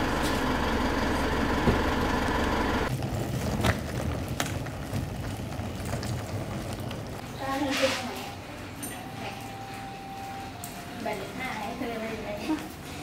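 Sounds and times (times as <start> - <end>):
car engine idling: 0.0 - 2.9.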